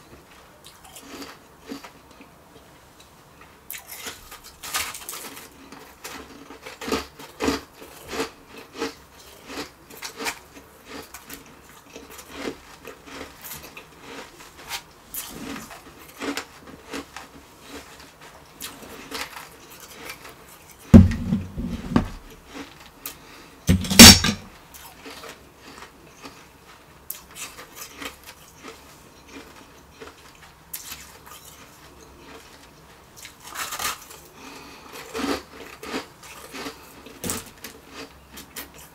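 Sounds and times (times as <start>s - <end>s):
loud bumps with deep thud: 21.0s - 22.2s, 23.7s - 24.4s.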